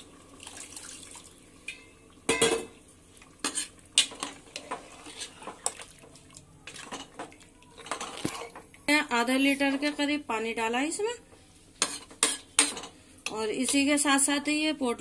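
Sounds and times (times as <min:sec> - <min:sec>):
ladle clinking and scraping pot: 0:03.4 - 0:05.8.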